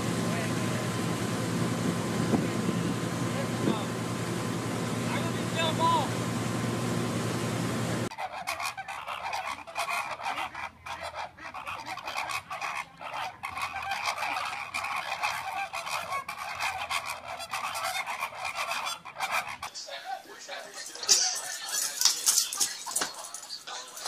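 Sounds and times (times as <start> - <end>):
flamingos honking: 0.0 - 24.0.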